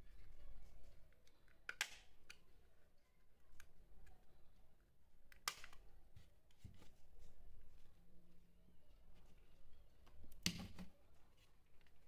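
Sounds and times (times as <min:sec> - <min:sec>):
plastic snaps: 0:01.2 - 0:02.4, 0:05.3 - 0:05.9.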